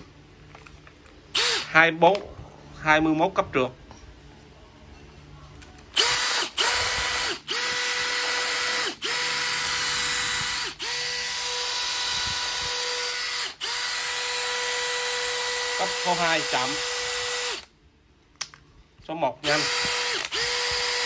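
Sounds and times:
drill motor whining: 1.3 - 1.8, 5.9 - 17.7, 19.4 - 21.0.

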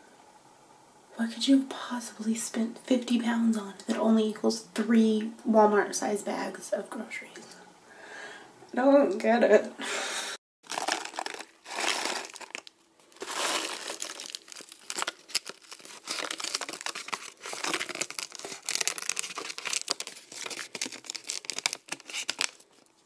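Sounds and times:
plastic packet crinkling: 10.6 - 23.0.

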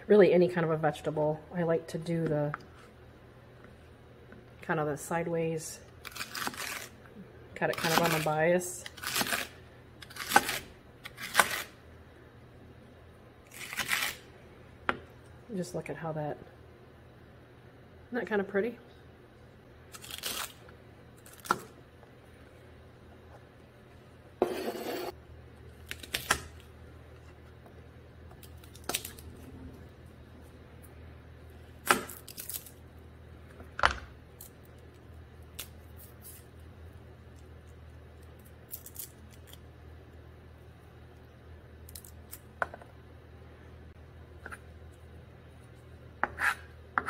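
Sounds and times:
cleaver scraping board: 46.2 - 46.7.

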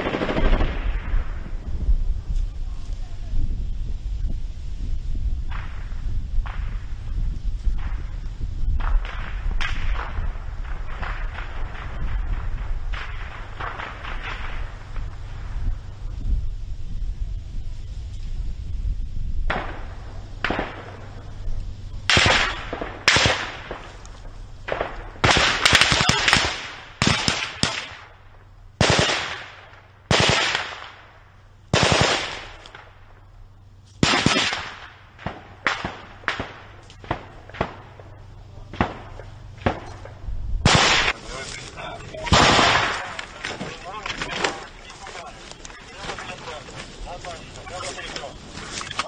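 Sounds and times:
rifle shots echoing: 0.0 - 1.4, 8.8 - 15.5, 19.5 - 21.4, 22.0 - 33.2, 34.0 - 41.4, 42.1 - 45.3.

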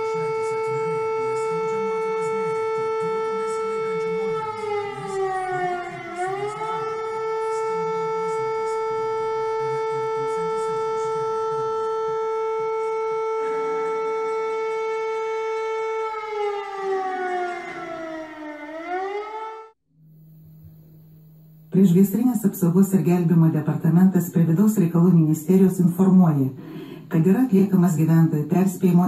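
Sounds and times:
civil defence siren: 0.0 - 19.8.

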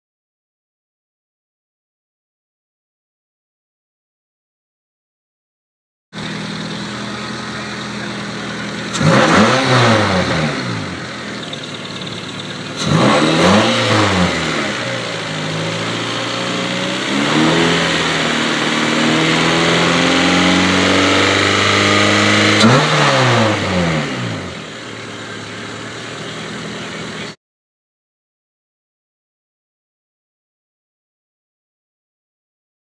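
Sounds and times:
car engine idling and revving: 6.2 - 27.4.

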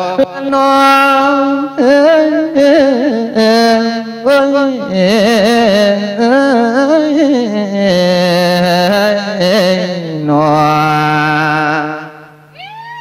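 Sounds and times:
person singing into a microphone: 0.0 - 13.0.

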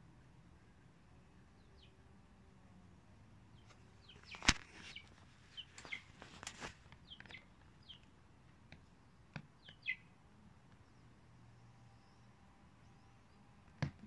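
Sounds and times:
chick peeping: 3.6 - 8.1, 9.6 - 11.1.

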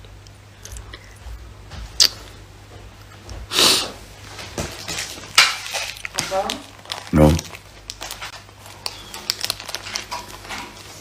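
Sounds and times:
loud breath through nose: 3.5 - 4.0.

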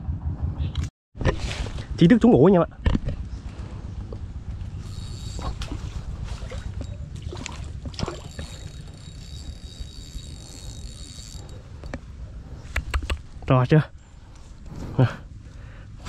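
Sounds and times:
fishing reel cranking: 4.6 - 12.0
fish splashing: 4.9 - 11.7.

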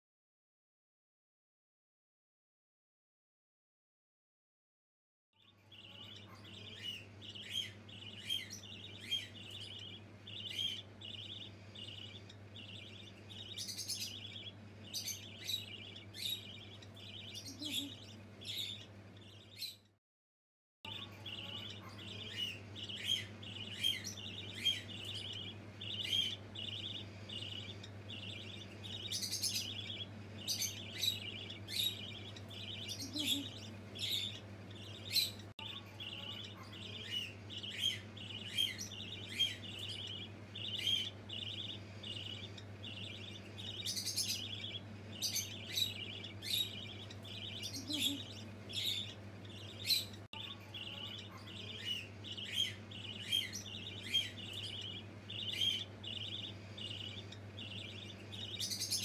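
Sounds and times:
steady low hum: 5.7 - 19.6, 20.9 - 59.0
budgerigars chattering: 5.7 - 19.8, 20.9 - 59.0.

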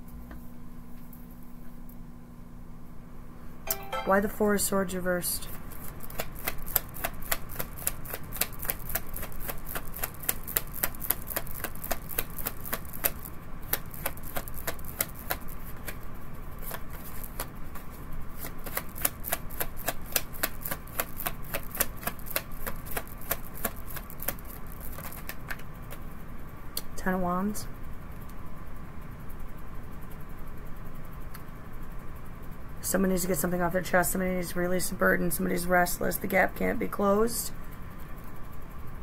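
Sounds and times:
cards being shuffled: 5.4 - 16.0, 16.6 - 26.0.

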